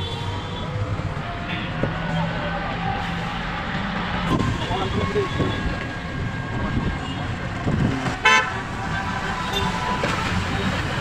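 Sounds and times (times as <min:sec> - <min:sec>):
rickshaw road rumble: 0:00.0 - 0:11.0
vehicle horn toot: 0:08.2 - 0:08.5.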